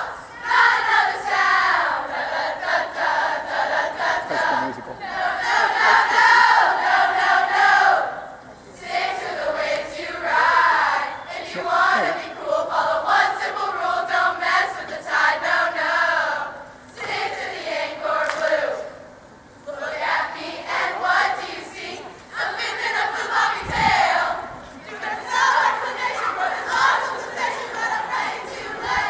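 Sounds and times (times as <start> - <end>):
girls chanting a cheer: 5.0 - 18.9, 19.7 - 29.0.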